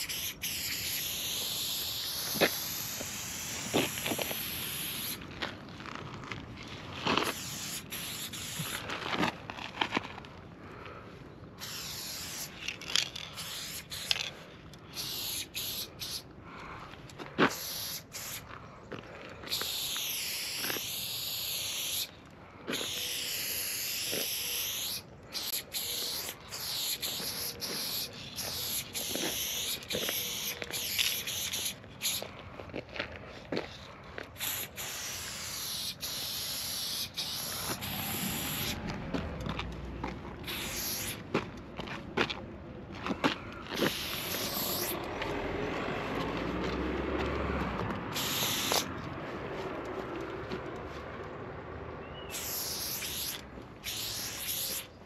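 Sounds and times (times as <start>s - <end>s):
spray paint can hissing: 0.0s - 5.2s, 7.1s - 8.9s, 11.6s - 16.3s, 17.5s - 18.5s, 19.5s - 22.1s, 22.7s - 32.2s, 34.4s - 38.8s, 40.4s - 41.3s, 43.8s - 45.0s, 48.1s - 48.9s, 52.3s - 55.0s.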